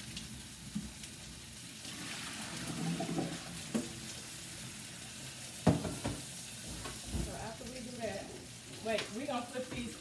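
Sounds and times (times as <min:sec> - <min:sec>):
steaks sizzling in a frying pan: 0:00.0 - 0:10.0
water splashing in a sink: 0:01.8 - 0:04.2.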